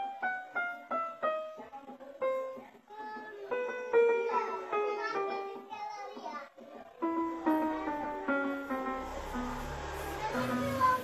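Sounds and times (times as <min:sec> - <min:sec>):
electronic keyboard notes: 0:00.0 - 0:02.7, 0:06.9 - 0:11.0.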